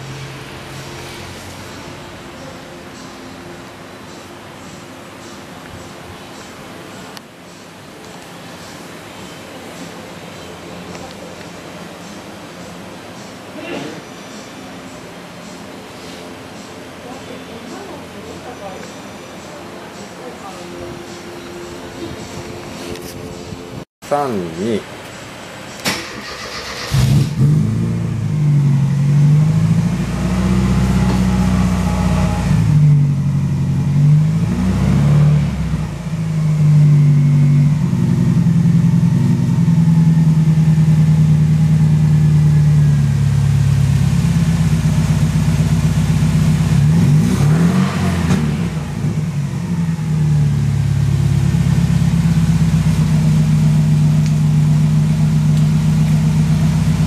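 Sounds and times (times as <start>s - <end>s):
car engine revving and idling: 26.4s - 57.0s.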